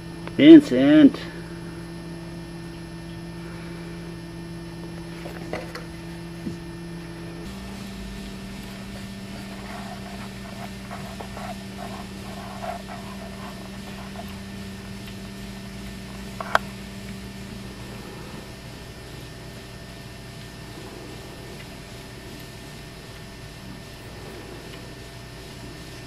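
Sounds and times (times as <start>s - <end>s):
treadmill motor and belt running: 0.0s - 26.0s.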